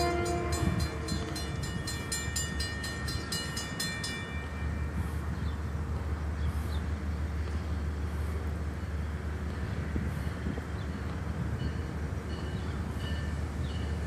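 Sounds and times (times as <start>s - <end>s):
crossing warning bell ringing: 0.0s - 5.3s, 10.3s - 14.0s.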